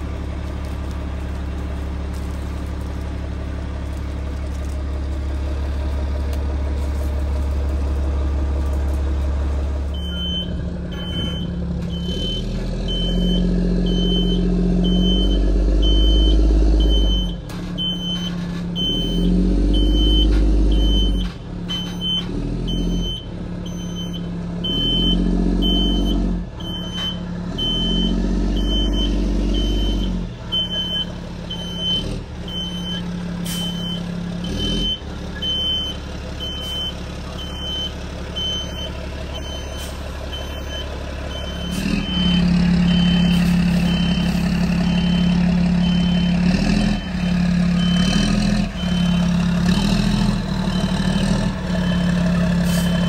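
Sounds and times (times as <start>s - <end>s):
truck engine revving: 0.0s - 53.0s
backup alarm beeping: 10.0s - 33.0s, 33.6s - 49.4s.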